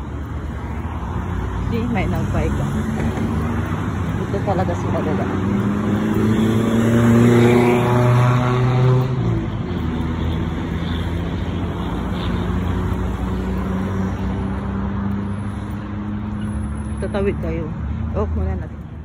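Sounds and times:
steady traffic hum: 0:00.0 - 0:19.0.

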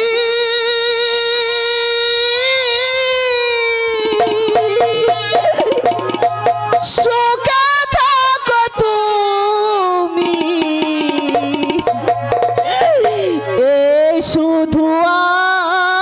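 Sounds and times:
person singing: 0:00.0 - 0:12.0, 0:12.6 - 0:16.0
hand drum strokes: 0:02.4 - 0:08.5, 0:10.1 - 0:13.7.

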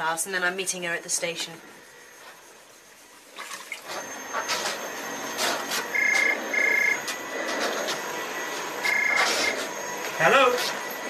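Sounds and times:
vacuum cleaner running: 0:00.0 - 0:11.0
telephone ringing: 0:05.9 - 0:07.1, 0:08.8 - 0:09.4.

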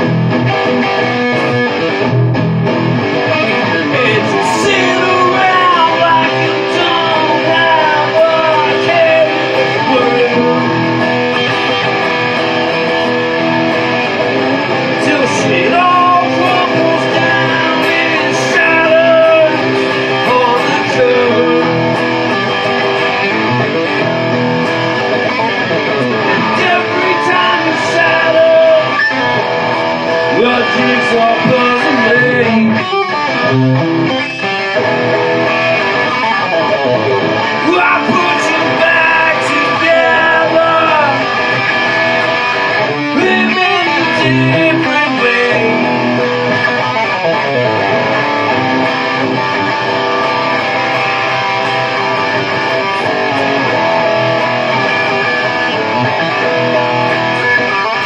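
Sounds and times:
guitar: 0:00.0 - 0:58.0
rock band playing: 0:00.0 - 0:58.0.

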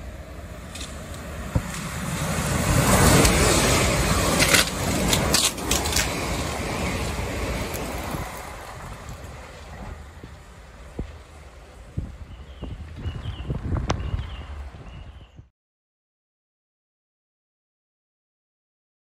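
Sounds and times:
train wheels rushing on rails: 0:00.0 - 0:14.8.

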